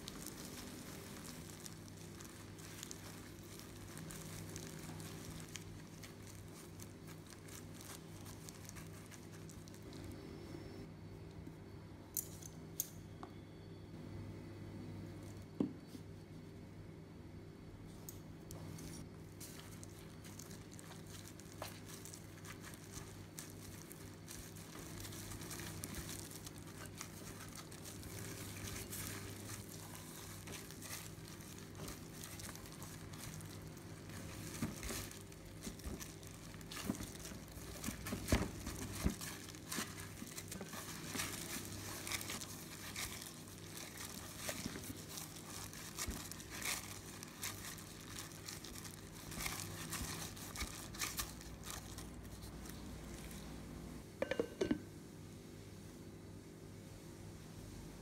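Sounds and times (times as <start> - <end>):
plastic gloves crinkling: 0.0 - 10.2, 17.9 - 54.0
steady low hum: 0.0 - 58.0
soft clicks and knocks on bowl: 54.2 - 54.8.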